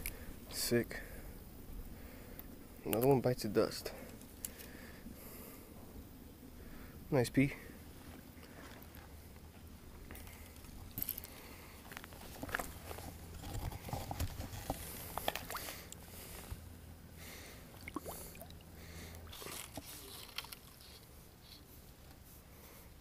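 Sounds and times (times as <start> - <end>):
low steady hum: 0.0 - 23.0
fishing gear clicks and rustles: 4.0 - 4.8, 10.0 - 16.6, 17.8 - 22.2.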